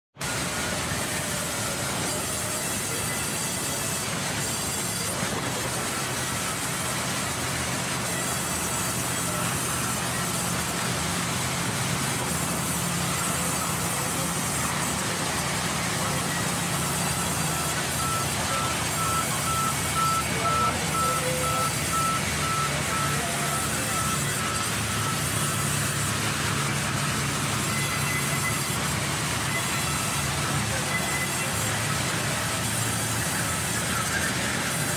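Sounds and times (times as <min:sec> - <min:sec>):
band saw cutting a log: 0:00.2 - 0:34.9
short high beeps: 0:15.9 - 0:26.2, 0:27.3 - 0:31.8.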